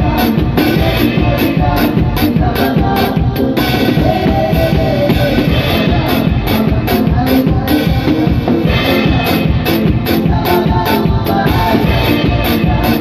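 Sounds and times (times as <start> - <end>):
drum kit beat: 0.0 - 13.0
live band music: 0.0 - 13.0.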